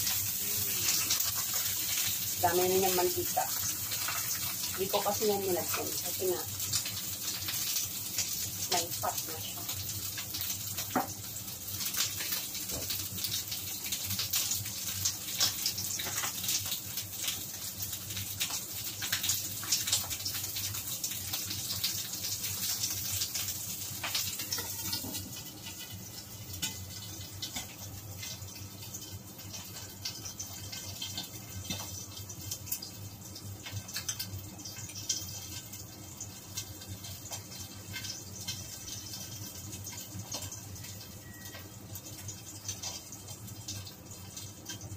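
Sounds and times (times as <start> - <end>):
meat sizzling in fat: 0.0 - 44.9.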